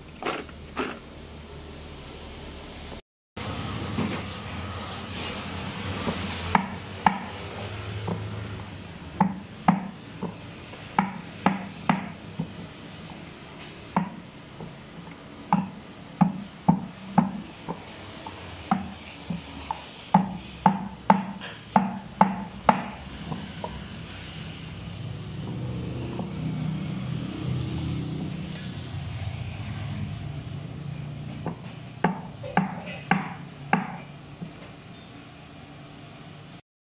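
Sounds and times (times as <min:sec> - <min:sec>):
stone pestle knocking on wood: 0:15.5 - 0:17.8.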